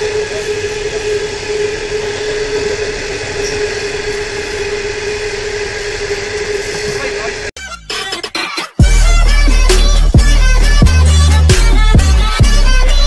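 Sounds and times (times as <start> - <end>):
high ringing tone: 0.0 - 7.2
freight train wheels on rail: 0.0 - 7.5.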